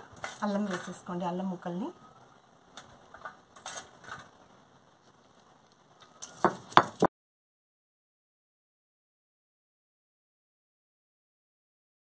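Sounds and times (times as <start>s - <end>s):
stone roller crunching and scraping: 2.8s - 4.4s
light knocks on stone: 6.4s - 7.1s.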